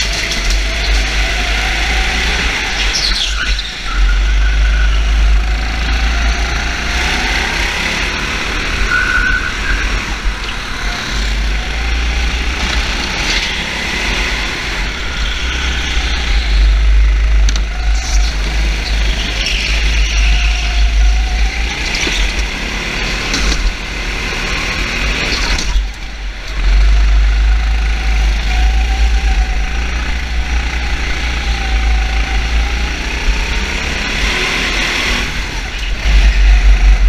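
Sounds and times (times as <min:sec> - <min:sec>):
vehicle engine running: 0:00.0 - 0:37.0
steady deep rumble: 0:14.2 - 0:22.4, 0:35.2 - 0:37.0.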